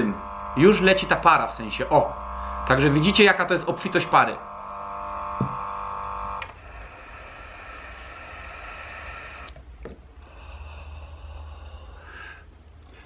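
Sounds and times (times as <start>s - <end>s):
air pump running: 0.0s - 9.6s
person inhaling vapour: 2.3s - 2.7s, 6.6s - 13.0s.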